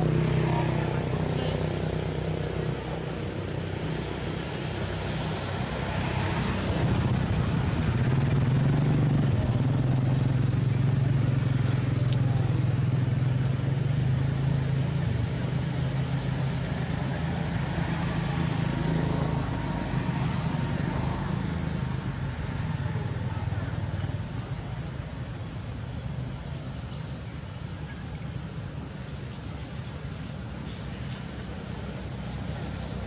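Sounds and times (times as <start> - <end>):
vehicle engine running: 0.0 - 26.2.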